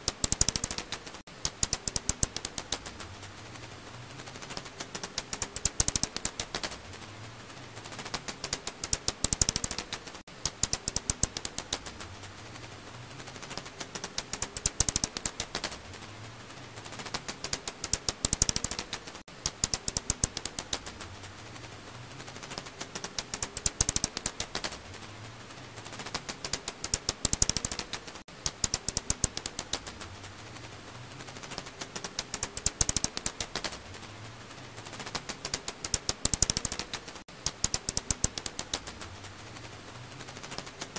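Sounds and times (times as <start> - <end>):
bat echolocation clicks: 0.0 - 3.0, 4.5 - 6.8, 8.0 - 12.1, 13.5 - 15.8, 17.0 - 21.1, 22.4 - 24.8, 26.0 - 30.1, 31.4 - 33.8, 35.0 - 39.1.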